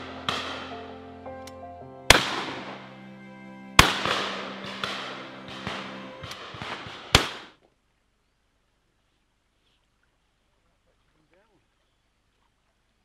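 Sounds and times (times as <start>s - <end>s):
faint distant gunshots: 0.0s - 1.1s, 2.1s - 7.6s
loud shotgun shots: 0.0s - 1.1s, 2.1s - 3.0s, 3.8s - 7.5s
background music: 0.0s - 7.5s.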